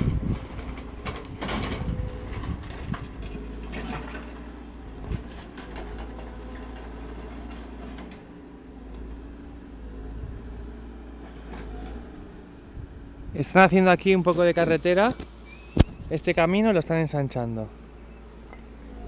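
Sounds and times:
steady low rumble: 9.4 - 10.8, 12.1 - 16.9.

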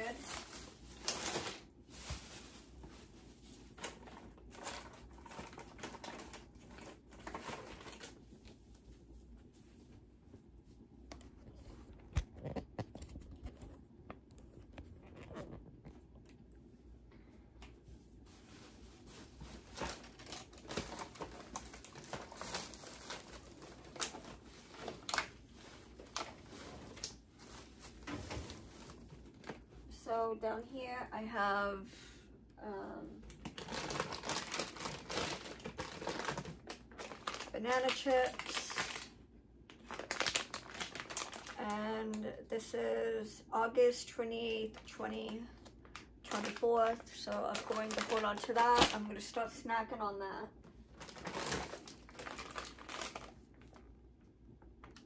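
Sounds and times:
plastic wrappers crinkling: 0.0 - 8.6, 18.2 - 29.9, 33.2 - 42.3, 44.6 - 49.5, 50.8 - 54.0.

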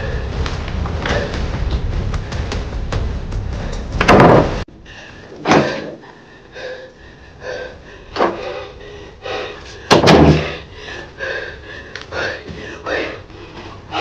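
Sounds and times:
loud thumps: 0.0 - 4.7, 9.9 - 10.6
background music: 0.0 - 6.0.

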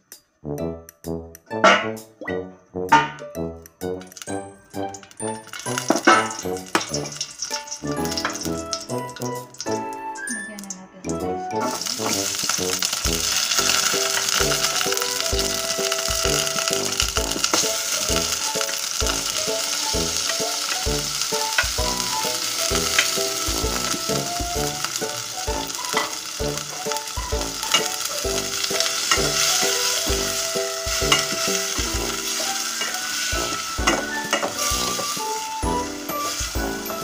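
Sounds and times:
background music with a beat: 0.0 - 10.4, 13.2 - 37.0
food sizzling in a pot: 3.8 - 10.3, 11.1 - 37.0
spoon stirring in a pot: 24.9 - 36.8.

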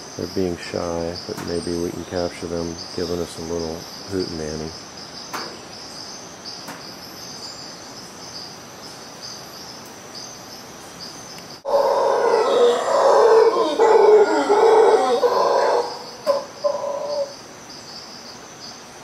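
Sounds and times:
insects chirping: 0.0 - 19.0
howler monkeys howling: 11.6 - 17.5.

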